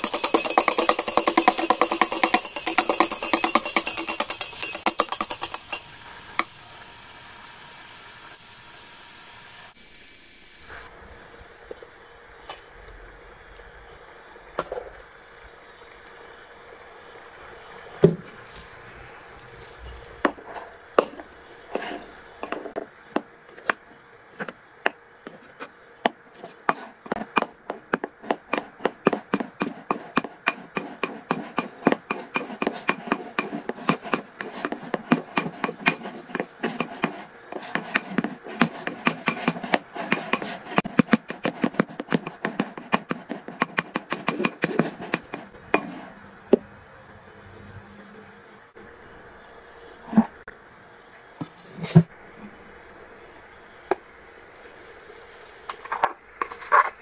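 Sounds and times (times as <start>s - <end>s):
sharp clicking and tapping: 0.0s - 5.8s, 26.0s - 45.6s.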